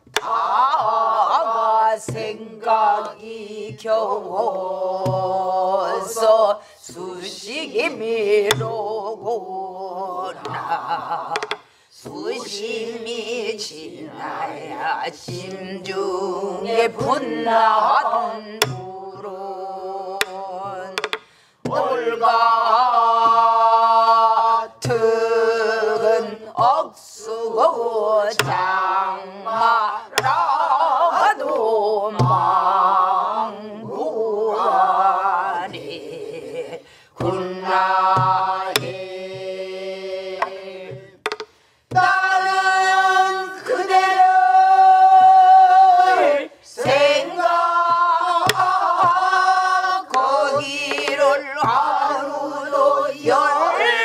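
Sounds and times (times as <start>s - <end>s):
group of voices singing: 0.0s - 54.0s
woman singing with vibrato: 0.0s - 54.0s
barrel drum strikes: 8.4s - 9.0s, 16.9s - 19.3s, 28.4s - 31.4s, 32.1s - 32.8s, 37.2s - 39.6s, 46.8s - 52.3s.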